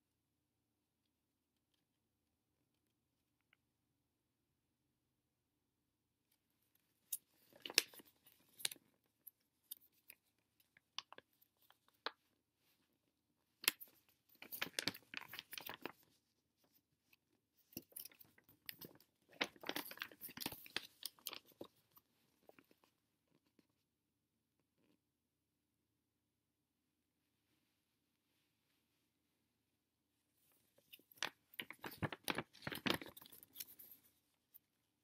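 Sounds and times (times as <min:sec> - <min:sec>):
glossy paper pages rustling: 0:13.6 - 0:16.8, 0:17.7 - 0:22.8, 0:30.7 - 0:34.2.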